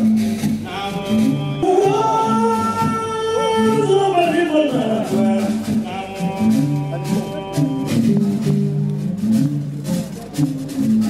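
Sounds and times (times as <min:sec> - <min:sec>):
low plucked lute pattern: 0:00.0 - 0:11.0
man singing held notes: 0:00.7 - 0:08.6.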